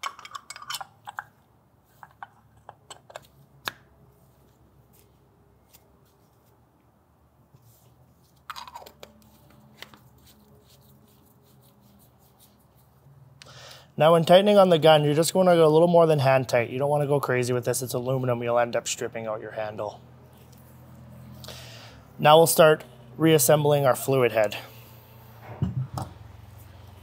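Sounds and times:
louder knock: 25.4 - 26.1.

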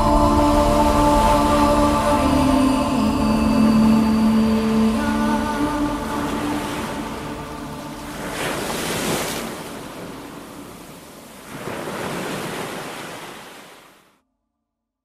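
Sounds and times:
waves washing on rocky shore: 3.9 - 14.1.

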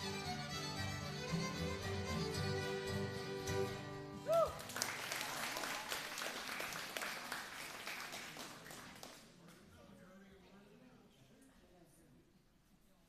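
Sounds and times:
acoustic band of guitars and fiddle: 0.0 - 4.7
audience applauding: 4.3 - 9.3.

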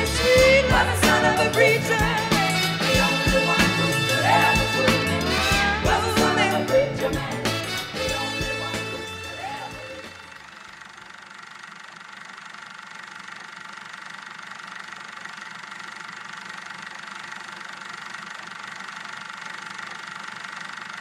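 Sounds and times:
film projector motor whir: 10.1 - 21.0.

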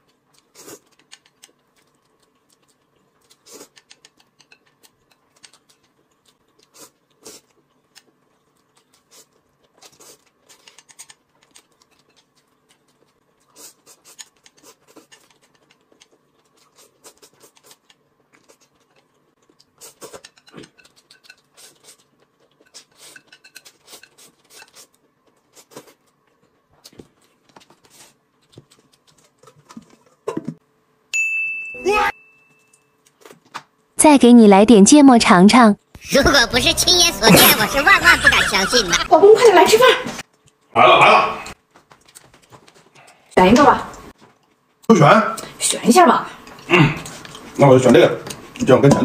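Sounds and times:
noodles slurped and chewed: 0.0 - 29.4.

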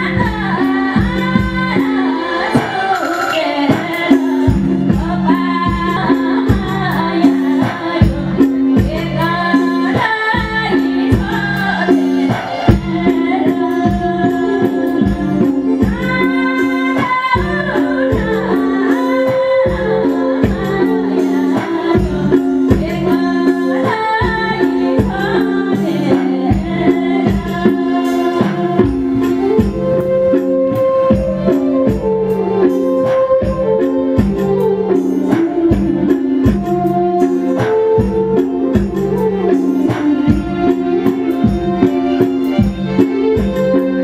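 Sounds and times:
woman singing folk song: 0.0 - 30.2
drum strokes: 0.0 - 44.0
live band accompaniment: 0.0 - 44.0.

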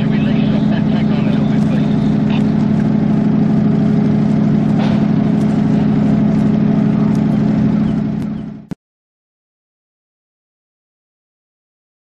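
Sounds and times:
engine running steadily: 0.0 - 8.8.

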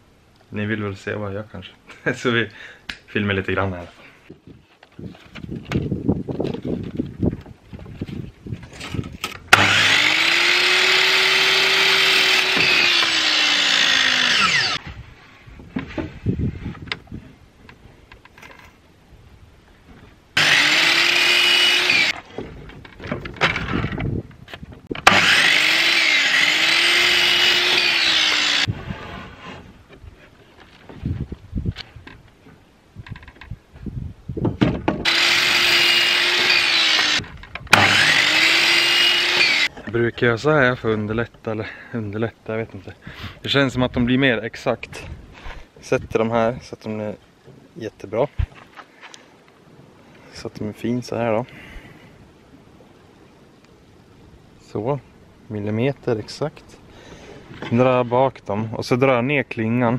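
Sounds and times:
mitre saw cutting wood: 9.5 - 14.8, 20.4 - 22.2, 25.0 - 29.7, 35.0 - 39.7.

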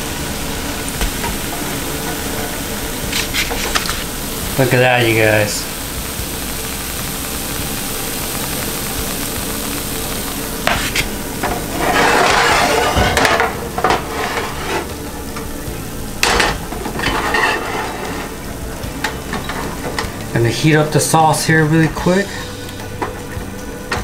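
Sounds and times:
sauce sizzling in frying pan: 0.0 - 24.0
wooden spatula scraping pan: 10.7 - 15.0, 17.0 - 18.3.

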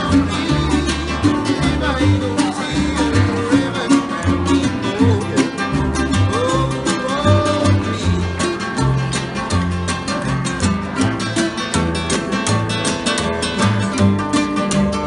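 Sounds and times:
man singing: 0.0 - 9.2
acoustic guitars strumming: 0.0 - 15.0
plucked double bass: 0.0 - 15.0.

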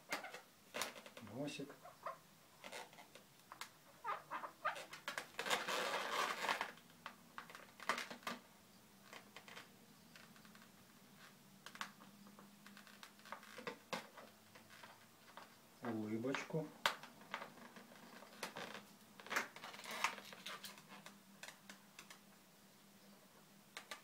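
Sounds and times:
balloons squeaking under fingers: 0.0 - 8.4, 16.4 - 21.1.

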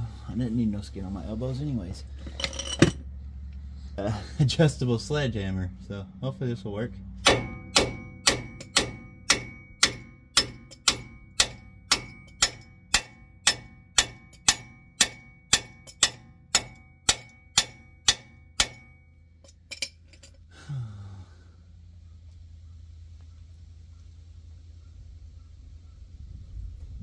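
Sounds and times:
wrench hammering on metal: 7.2 - 20.4.

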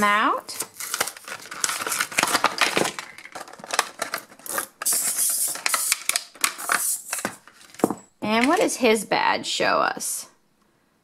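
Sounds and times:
plastic packaging crinkling: 0.4 - 8.7.

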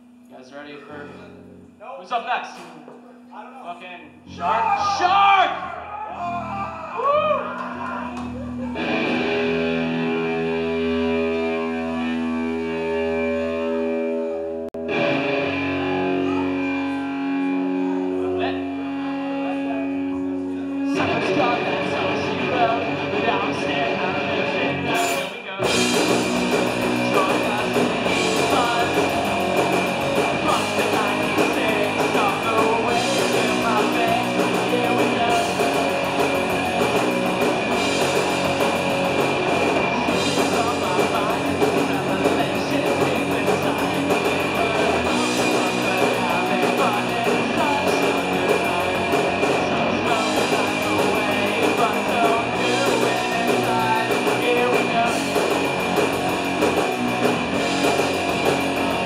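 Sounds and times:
distorted electric guitars: 4.2 - 59.0
drum kit: 20.9 - 59.0
person singing: 26.6 - 29.5, 30.2 - 36.4, 40.1 - 55.8.

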